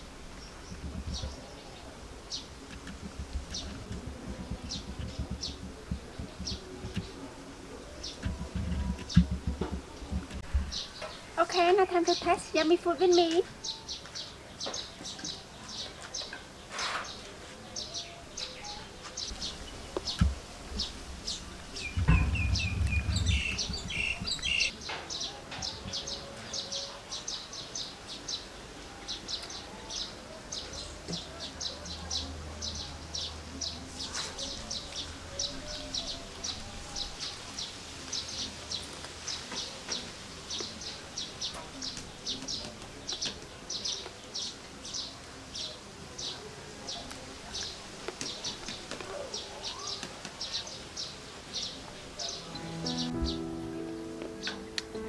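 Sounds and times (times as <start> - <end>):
small bird chirping: 17.8 - 26.8
loud low noise: 20.2 - 24.7, 52.4 - 55.0.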